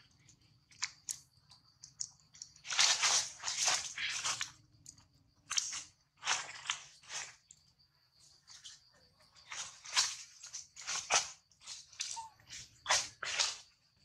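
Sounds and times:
dry leaves crunching: 2.6 - 4.5, 9.4 - 13.7.

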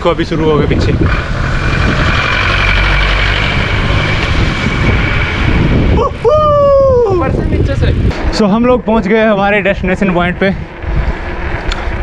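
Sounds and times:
van engine roaring: 0.0 - 12.0
wind on microphone: 0.0 - 12.0.

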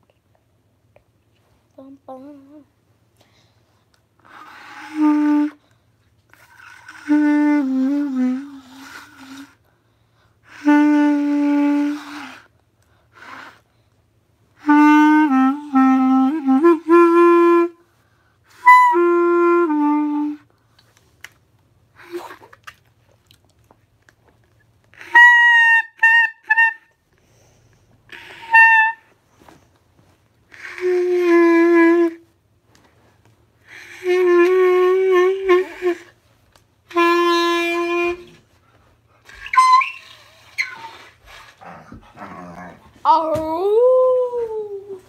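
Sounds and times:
clarinet playing: 4.2 - 5.6, 6.3 - 9.6, 10.5 - 12.5, 14.6 - 17.9, 18.5 - 20.5, 24.9 - 27.0, 28.1 - 29.1, 30.5 - 32.3, 33.6 - 36.2, 36.8 - 38.5, 39.3 - 41.2.

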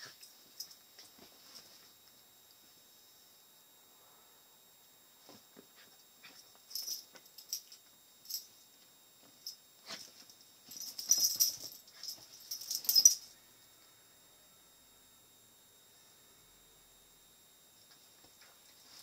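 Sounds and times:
metal collar tag jingling: 10.7 - 13.3.

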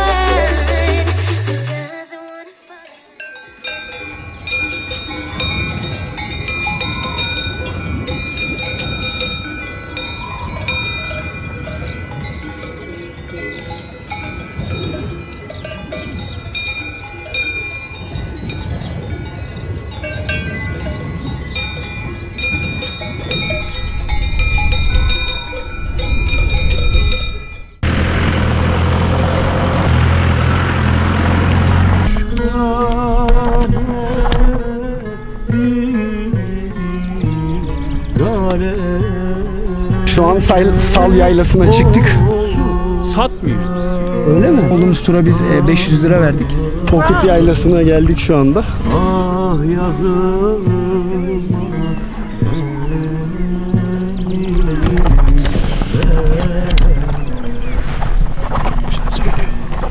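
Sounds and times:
livestock bells clanking: 2.8 - 32.9
off-road vehicle engine running: 27.8 - 34.8, 37.2 - 59.9.

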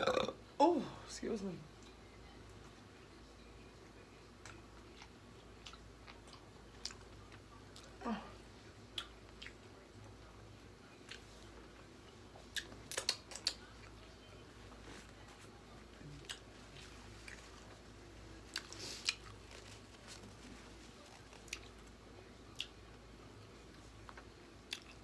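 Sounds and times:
wet mouth smacks eating: 12.5 - 13.7.

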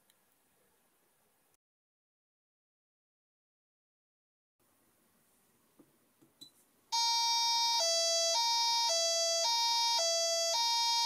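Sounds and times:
two-tone electronic siren: 7.0 - 11.0.

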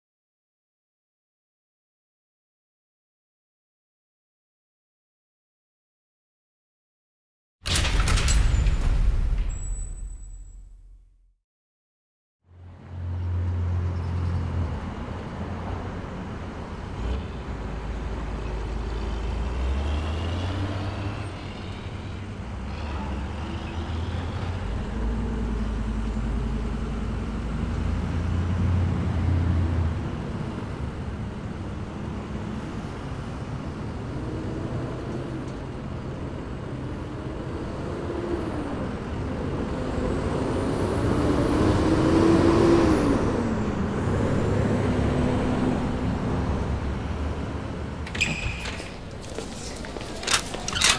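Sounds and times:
street traffic: 12.5 - 50.9
heavy vehicle engine rumbling: 45.9 - 50.9.

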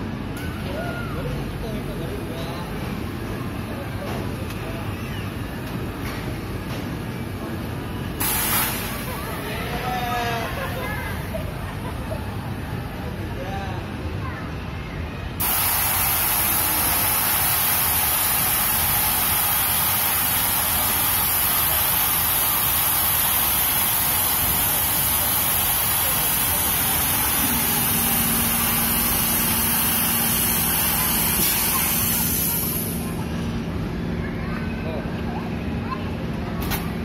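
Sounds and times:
ride lowering with loud hiss: 8.1 - 9.5, 15.4 - 33.4.

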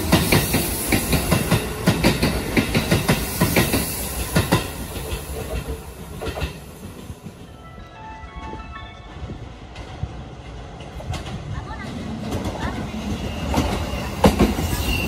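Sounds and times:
train wheels clacking over rail joints: 0.0 - 7.4.

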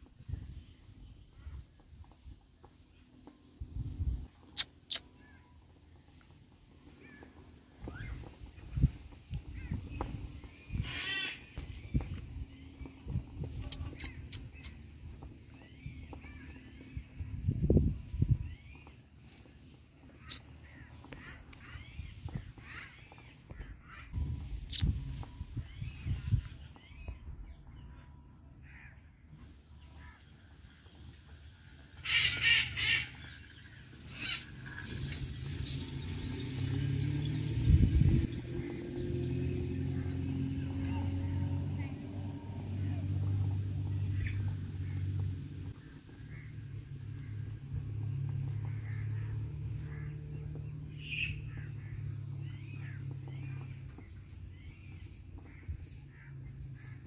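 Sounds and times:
faint bird chirp: 0.3 - 35.8.

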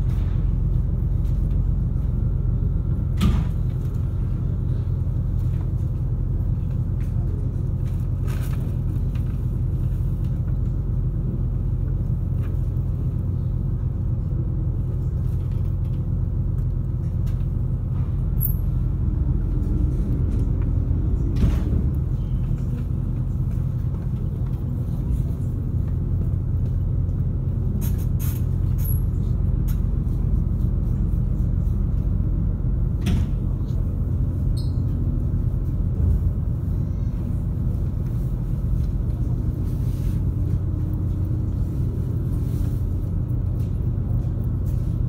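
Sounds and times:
ferry engines droning: 0.0 - 45.0.

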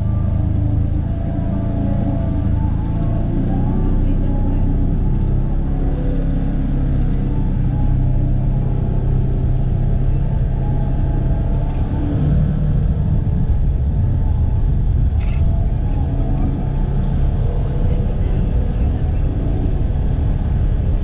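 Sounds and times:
engine running with low rumble: 0.0 - 21.0.

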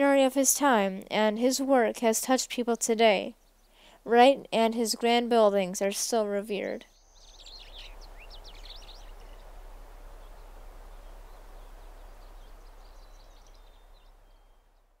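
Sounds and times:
birds calling: 6.6 - 14.9.

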